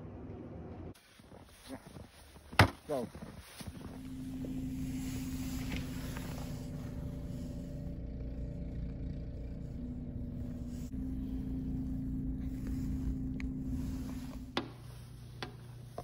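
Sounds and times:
engine running: 0:03.6 - 0:16.0.

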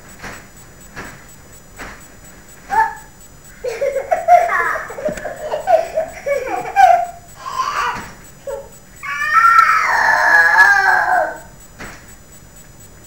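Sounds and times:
young children laughing: 0:02.7 - 0:11.5.

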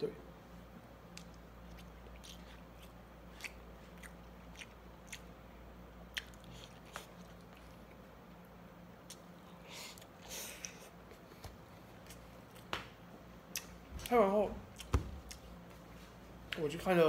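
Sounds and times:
faint chewing: 0:01.1 - 0:05.4, 0:06.1 - 0:12.7.

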